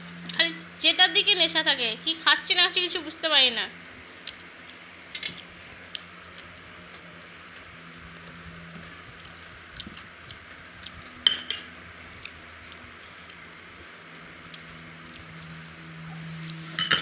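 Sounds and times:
fingers squelching food on plates: 12.1s - 16.6s.

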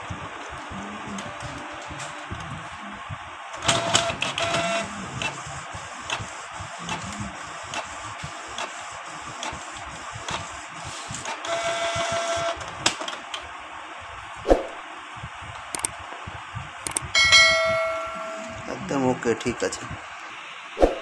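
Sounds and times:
printer motor whining: 0.0s - 13.5s
printer clicking: 3.6s - 13.5s, 15.6s - 15.9s, 16.8s - 17.1s.

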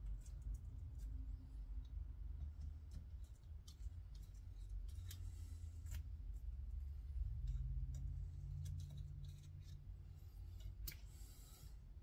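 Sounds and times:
low steady hum: 0.0s - 12.0s
small metal parts clicking: 7.4s - 11.1s.

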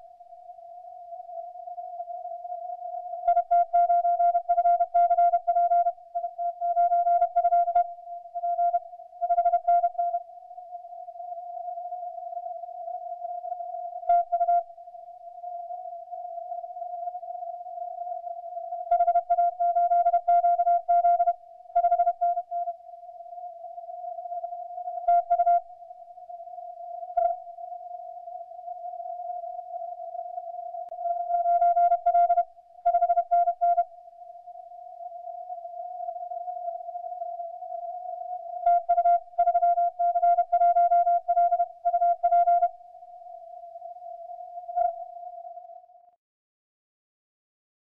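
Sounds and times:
morse code tone: 31.3s - 33.8s.

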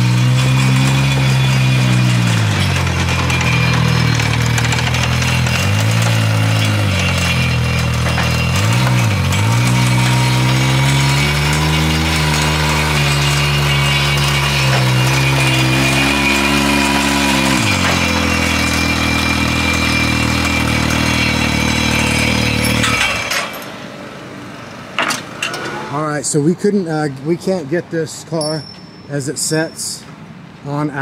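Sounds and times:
engine revving and idling: 0.0s - 23.7s.

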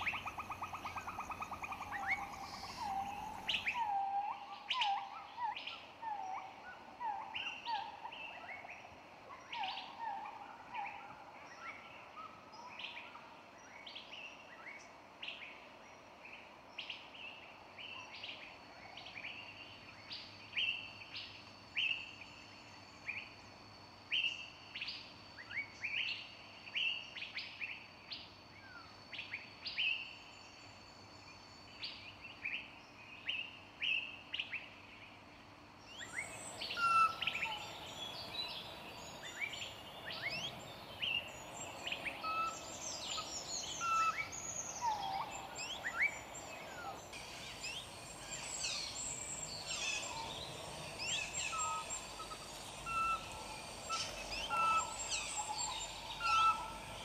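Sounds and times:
small birds chirping: 0.0s - 5.4s, 35.9s - 57.0s
chorus of chirps and whistles: 0.0s - 13.1s, 35.9s - 57.0s.

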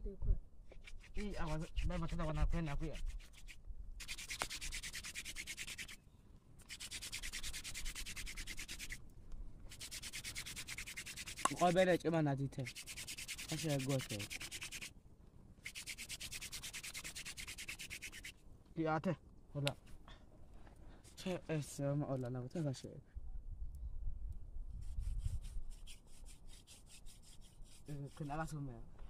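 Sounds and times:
wooden spindle rasping on wood: 6.6s - 9.0s, 9.7s - 11.9s, 12.6s - 14.9s, 24.8s - 28.6s.

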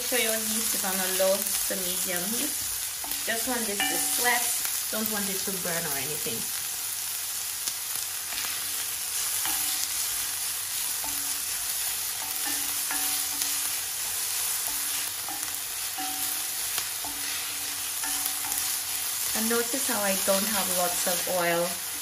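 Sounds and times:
onions sizzling in oil: 0.0s - 22.0s
wooden spoon scraping a pan: 8.2s - 22.0s.

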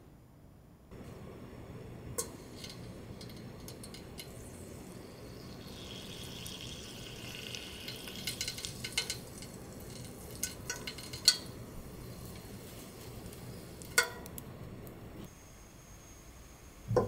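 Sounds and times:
hot oil fizzing: 2.2s - 14.6s
oil crackling: 2.4s - 15.0s.

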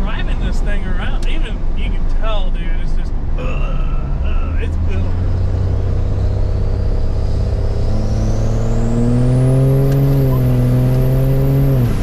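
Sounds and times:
diesel engine accelerating: 0.0s - 12.0s.

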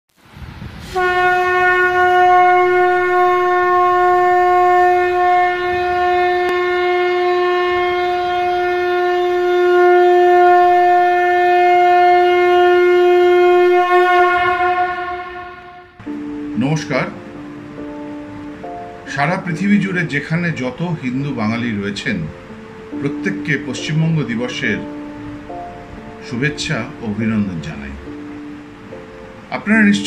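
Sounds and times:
conch shell blown: 0.9s - 16.2s.

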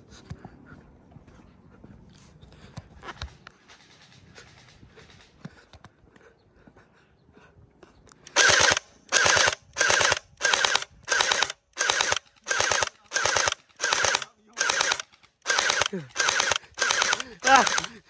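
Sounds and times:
gel blaster firing bursts: 8.3s - 18.0s.

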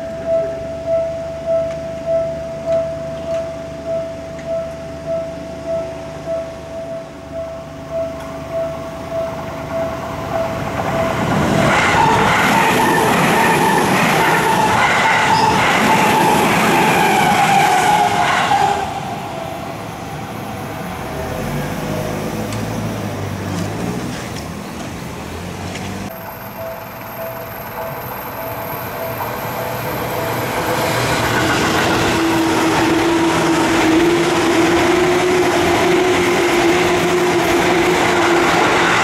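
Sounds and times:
electric train passing: 0.0s - 39.0s
level crossing bell ringing: 26.2s - 30.8s.

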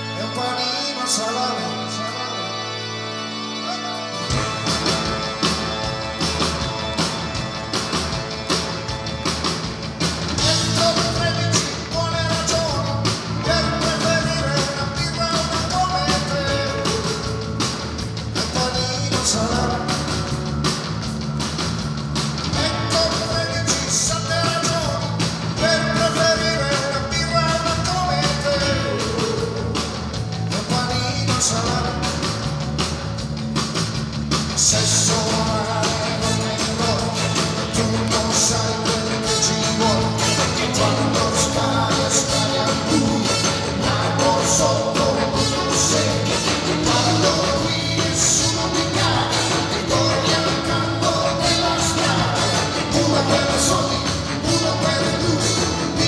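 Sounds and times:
man singing lead vocals: 0.0s - 2.8s, 10.4s - 20.4s, 22.5s - 32.5s, 34.5s - 56.0s
drums: 0.0s - 56.0s
electric guitars: 0.0s - 56.0s.

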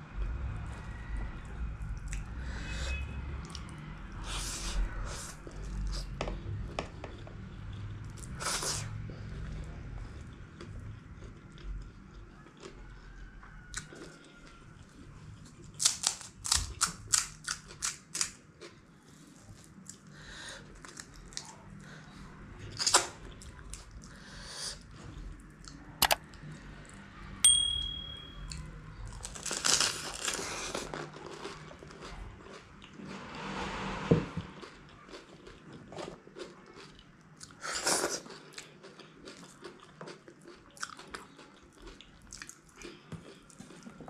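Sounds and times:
crisp shells crunching: 29.2s - 31.6s
chewing and lip smacks: 34.6s - 44.0s.

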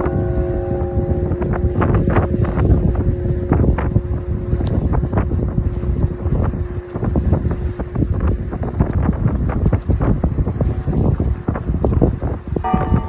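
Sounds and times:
large bell struck with mallet: 0.0s - 5.1s, 12.6s - 13.0s
wind buffeting microphone: 0.0s - 13.0s.

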